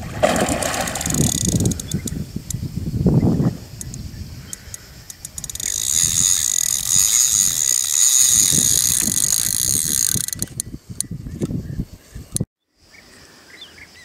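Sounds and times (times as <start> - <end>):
fishing reel drag clicking: 0.9 - 2.7, 3.7 - 11.7.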